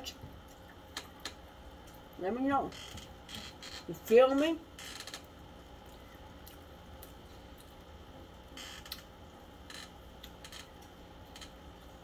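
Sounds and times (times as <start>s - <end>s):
chewing crispy chicken: 5.2s - 12.0s.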